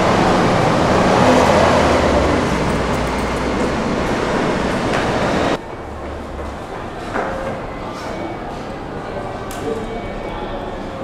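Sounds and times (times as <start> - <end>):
vehicle and transit rumble: 0.0 - 7.0.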